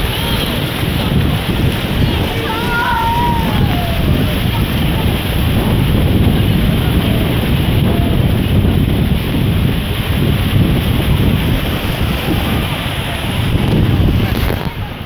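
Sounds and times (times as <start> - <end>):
creek water rushing over rocks: 0.0 - 15.0
wind buffeting microphone: 0.0 - 15.0.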